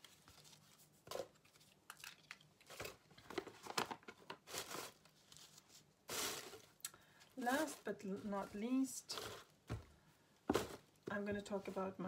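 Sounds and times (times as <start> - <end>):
packaging rustling: 0.0 - 9.6.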